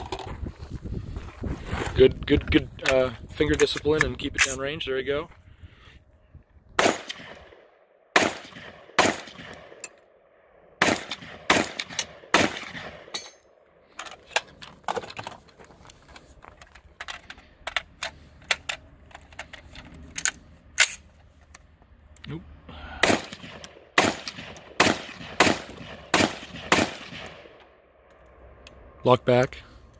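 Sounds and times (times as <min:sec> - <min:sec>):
rifle gunshots: 0:06.8 - 0:09.8, 0:10.8 - 0:13.1, 0:23.0 - 0:27.6
faint gunshots: 0:08.2 - 0:09.7, 0:23.0 - 0:27.5.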